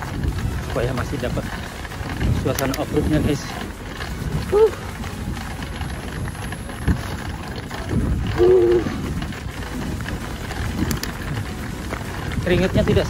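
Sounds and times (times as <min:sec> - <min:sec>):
bike tyres rumbling on gravel: 0:00.0 - 0:13.0.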